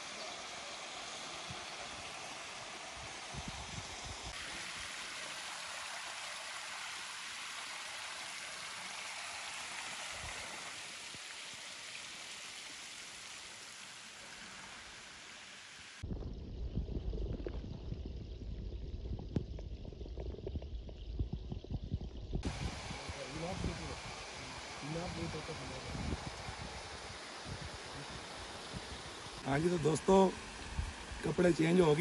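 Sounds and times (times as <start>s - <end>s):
waterfall splashing into pool: 0.0s - 16.1s, 22.4s - 32.0s.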